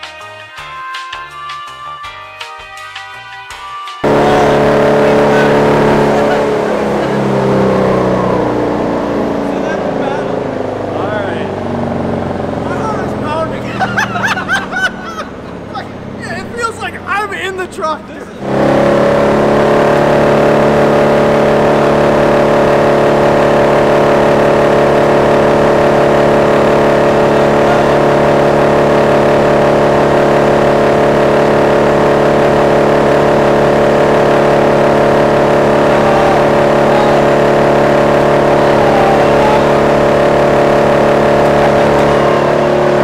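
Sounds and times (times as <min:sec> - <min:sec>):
wood chipper running: 0:04.0 - 0:43.0.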